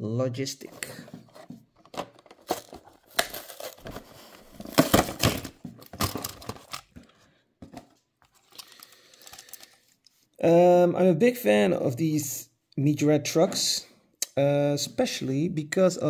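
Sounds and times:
plastic blister pack crinkling: 1.8s - 7.1s, 8.3s - 10.2s.

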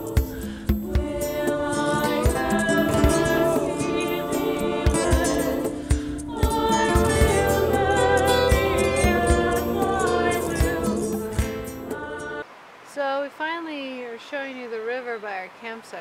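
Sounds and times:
steady drum beat: 0.0s - 12.0s
song with singing voices: 0.0s - 12.5s.

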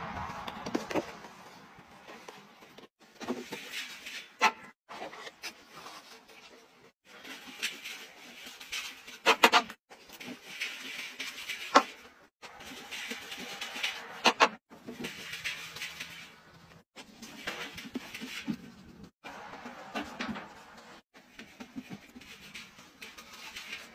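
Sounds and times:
powder pouring and scraping: 5.1s - 9.3s, 9.9s - 23.9s.

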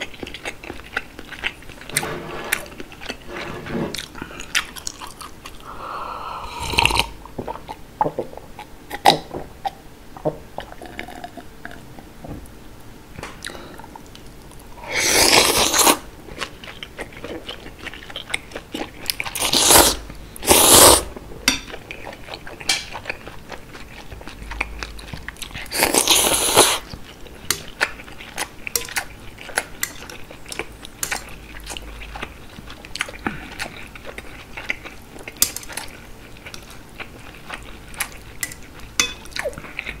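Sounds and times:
chewing: 0.0s - 2.1s, 2.7s - 5.7s, 15.3s - 20.0s, 21.7s - 40.0s
wet noodle slurps: 19.4s - 21.1s, 25.7s - 26.8s.

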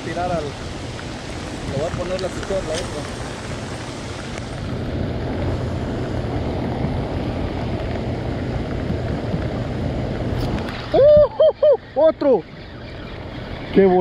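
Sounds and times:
heavy rain falling: 0.0s - 11.2s
wind buffeting microphone: 0.0s - 14.0s.

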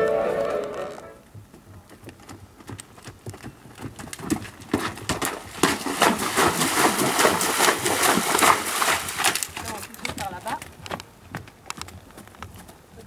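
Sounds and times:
horse hoofbeats cantering: 0.0s - 13.0s
water splashing: 5.1s - 10.6s.

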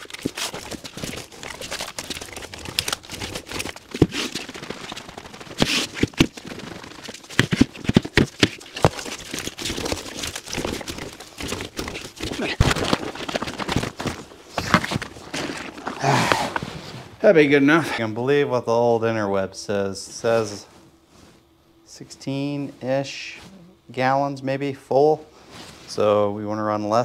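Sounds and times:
plastic pail rolling on concrete: 0.0s - 16.6s.

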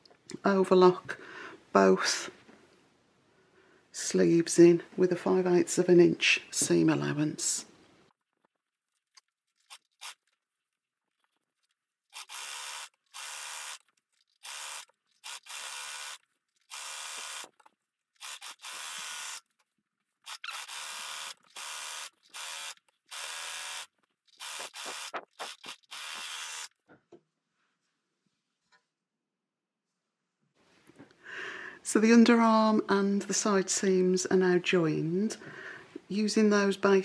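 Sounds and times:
overlocker stitching: 8.2s - 26.8s.

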